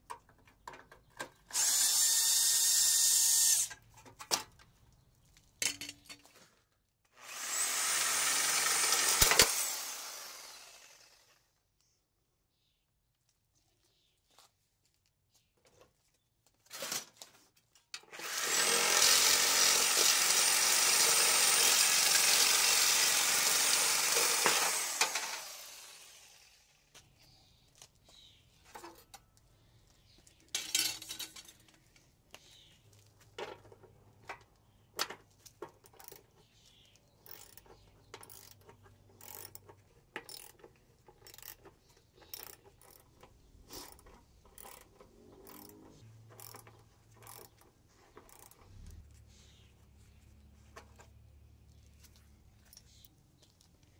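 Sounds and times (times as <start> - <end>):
power saw cutting pipe: 1.5 - 3.7, 7.2 - 11.4, 18.0 - 26.8
socket ratchet clicking: 37.2 - 43.1.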